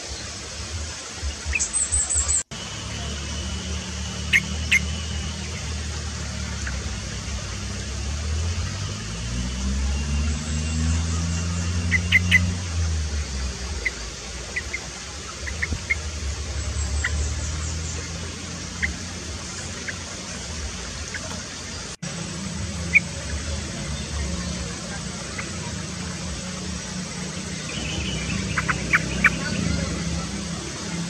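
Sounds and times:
low engine-like rumble: 0:00.0 - 0:31.0.

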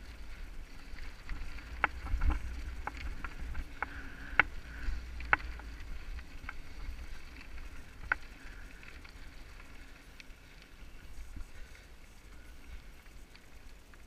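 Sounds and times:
wind on microphone: 0:00.0 - 0:08.7
bike clicking and rattling: 0:00.0 - 0:14.0.

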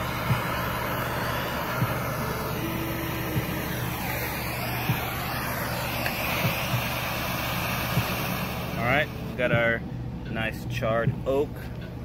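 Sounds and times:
propane torch hissing: 0:00.0 - 0:09.8
soft low thumps: 0:11.0 - 0:11.3.

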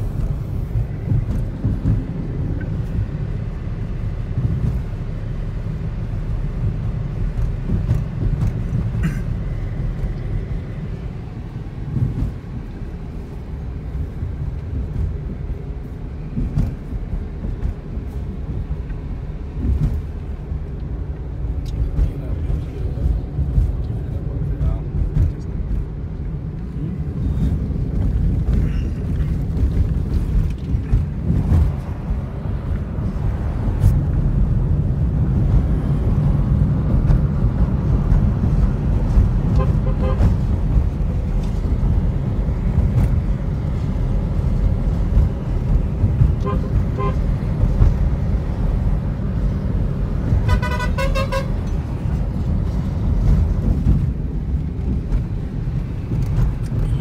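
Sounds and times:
car cabin road rumble: 0:00.0 - 0:57.0
vehicle horn: 0:39.5 - 0:40.3, 0:46.4 - 0:47.3, 0:50.4 - 0:51.6
short horn toots: 0:50.4 - 0:51.6.

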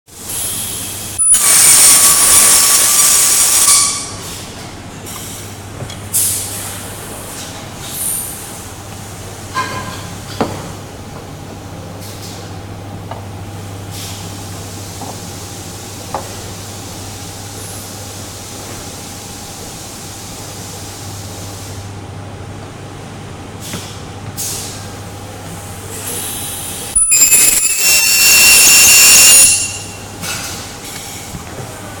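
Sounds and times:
welding machine high-pitched screech: 0:00.3 - 0:04.2, 0:26.0 - 0:30.0.

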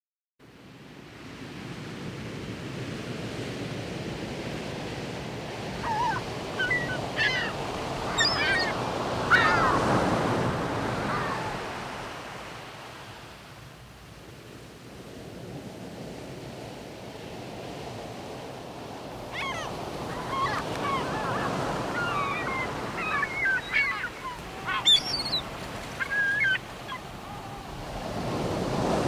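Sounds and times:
sea surf washing: 0:01.0 - 0:29.0
short bird calls: 0:08.1 - 0:09.8, 0:19.4 - 0:27.7.

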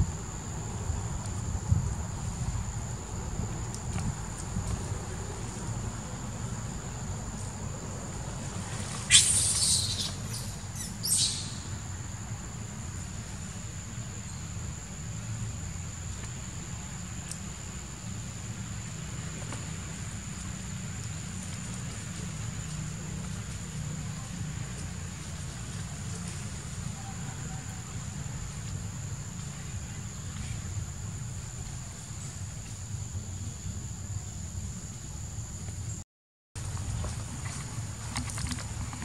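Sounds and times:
monkey shrieking: 0:09.1 - 0:10.2.

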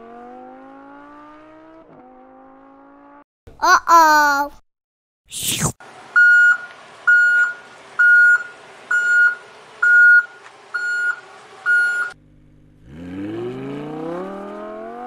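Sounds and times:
electronic warning beeps: 0:06.2 - 0:12.1.

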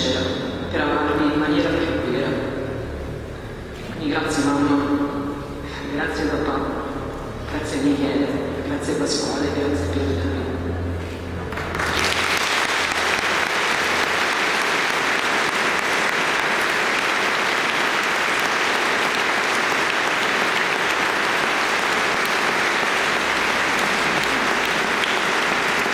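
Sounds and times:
crowd applauding: 0:11.4 - 0:25.9.

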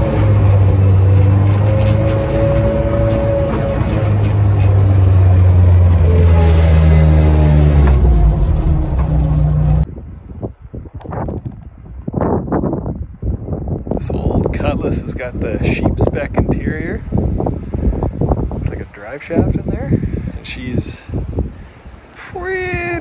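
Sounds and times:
car engine running: 0:00.0 - 0:09.9.

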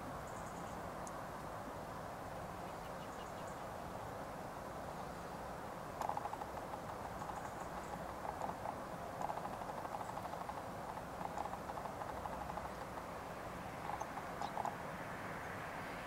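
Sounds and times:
steady hiss: 0:00.0 - 0:16.0
birds pecking seed tapping: 0:06.0 - 0:13.1, 0:13.8 - 0:14.8.

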